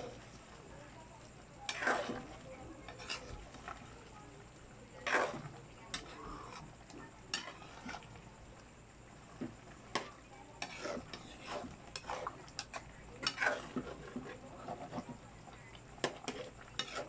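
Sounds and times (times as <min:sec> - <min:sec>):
food sizzling: 0:00.0 - 0:17.0
metal spatula scraping frying pan: 0:01.6 - 0:03.9, 0:05.0 - 0:08.2, 0:09.9 - 0:15.2, 0:16.0 - 0:17.0.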